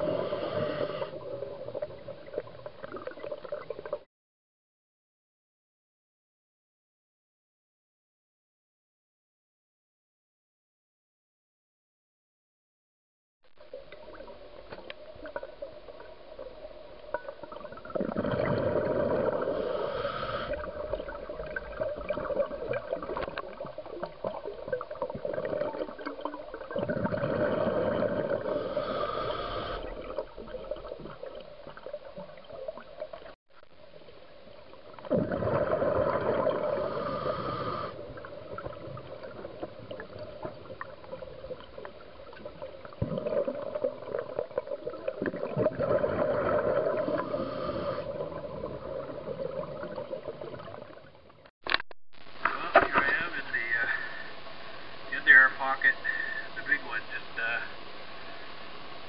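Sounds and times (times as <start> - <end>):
exhaled bubbles rushing underwater: 0.0 - 4.0, 13.7 - 33.4, 34.4 - 51.2
regulator breathing and bubbling: 17.2 - 33.3, 35.0 - 51.1.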